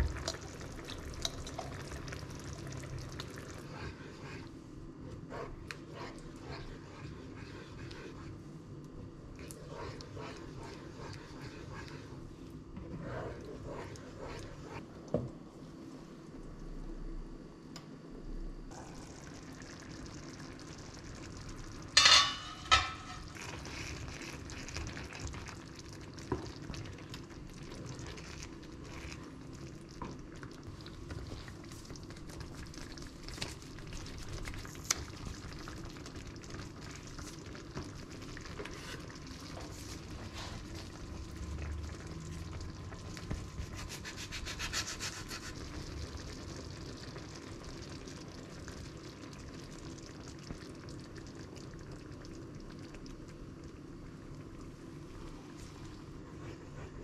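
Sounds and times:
spoon stirring and scraping pan: 0:09.4 - 0:12.2, 0:22.0 - 0:25.4.

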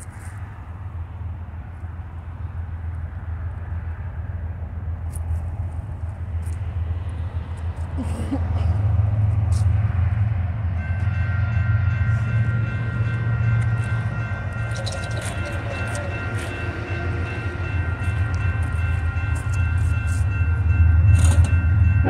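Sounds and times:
railroad crossing bell ringing: 0:09.0 - 0:22.0.

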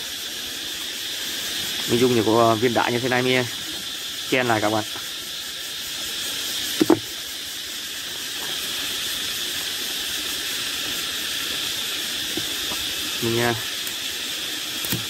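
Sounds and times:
steady high hiss: 0:00.0 - 0:15.0
stones knocking on rock: 0:06.8 - 0:07.0.

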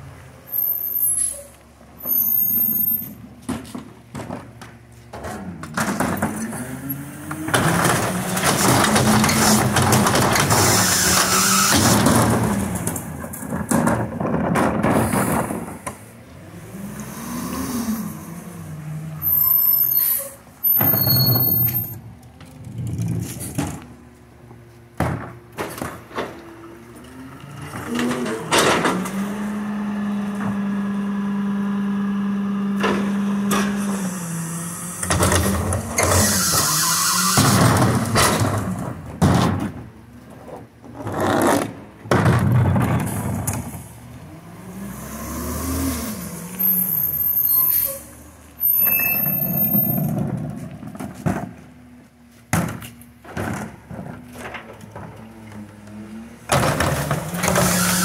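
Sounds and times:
garbage truck engine revving: 0:41.0 - 0:51.6.

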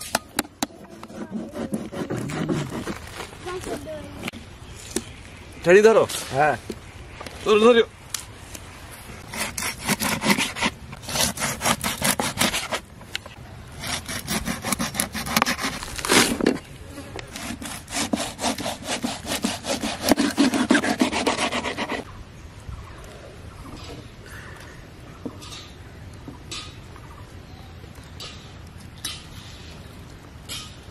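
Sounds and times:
knife scraping fish: 0:09.3 - 0:12.8, 0:13.8 - 0:16.4, 0:17.3 - 0:22.0.

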